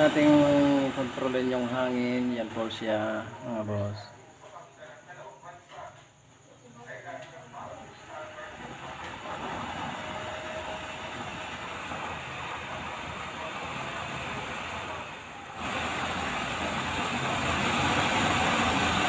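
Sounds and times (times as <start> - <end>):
blower-fed flame rushing: 0.0 - 3.7, 8.0 - 19.0.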